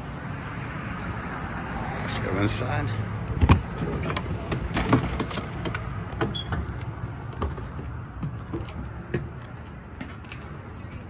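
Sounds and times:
footsteps on steps: 0:06.6 - 0:10.7.

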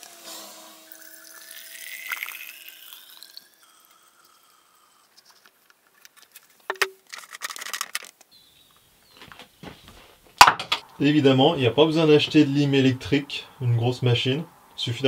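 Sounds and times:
fuel pouring into tank: 0:00.9 - 0:05.6
handling rattle: 0:05.3 - 0:08.3
sharp knock: 0:10.4 - 0:11.0.

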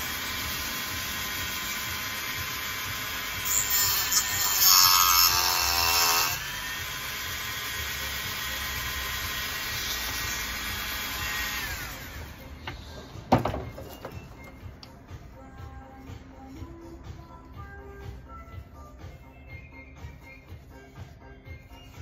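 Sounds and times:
rotary tool cutting coconut shell: 0:00.2 - 0:12.0.

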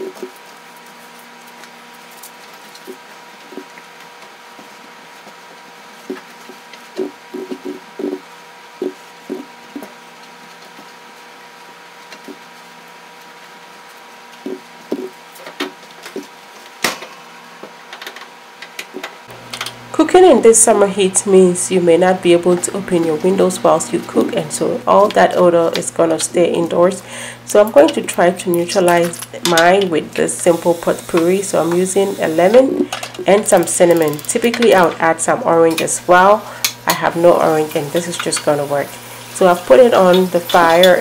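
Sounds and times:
faint steady hum: 0:18.7 - 0:41.0.

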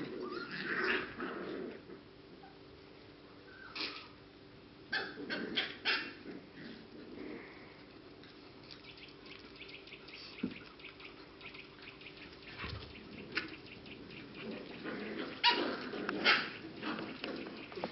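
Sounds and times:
puppies barking: 0:04.9 - 0:06.5, 0:08.6 - 0:17.9
small ticks and rustles: 0:06.5 - 0:17.9.

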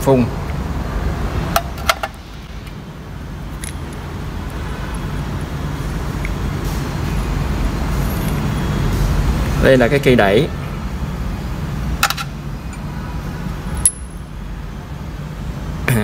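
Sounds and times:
small metal parts clicking: 0:03.5 - 0:05.1.

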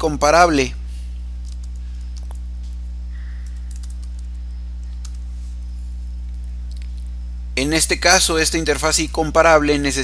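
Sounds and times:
low electrical hum: 0:00.0 - 0:10.0
faint keyboard typing: 0:01.4 - 0:07.2.

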